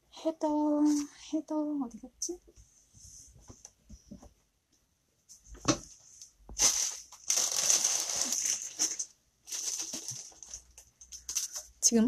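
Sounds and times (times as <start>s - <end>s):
hands rustling and handling yarn: 5.3s - 11.9s.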